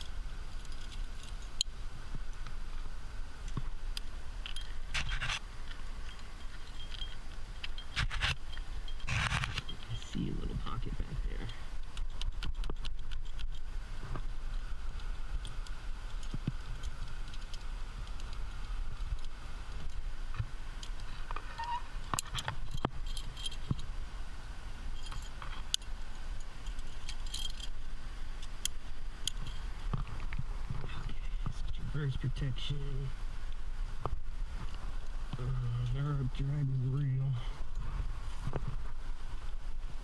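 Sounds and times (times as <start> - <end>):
climbing gear clinking: 0.0 - 2.4, 4.4 - 10.6, 20.8 - 23.9, 24.9 - 30.4.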